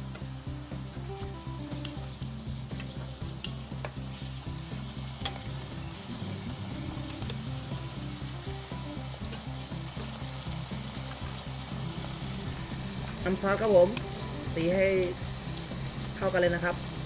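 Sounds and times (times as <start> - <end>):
food sizzling in a pan: 0.0 - 17.0
low background music: 0.0 - 17.0
spatula tapping: 2.8 - 4.1, 5.2 - 5.6.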